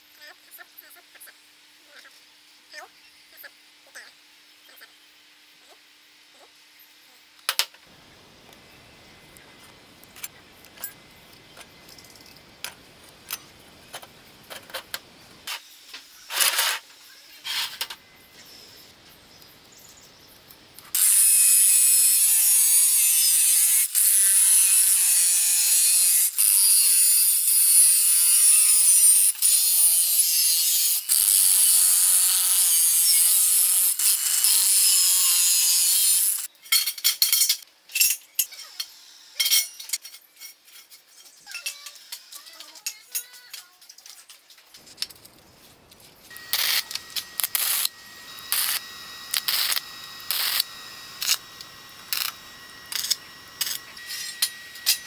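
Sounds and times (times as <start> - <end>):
angle grinder cutting metal tube: 20.9 - 36.5, 46.3 - 55.0.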